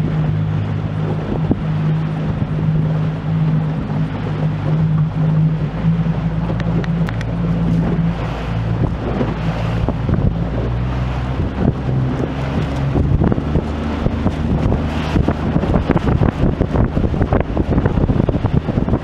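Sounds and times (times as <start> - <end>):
boat engine running: 0.0 - 19.0
wind buffeting microphone: 0.0 - 19.0.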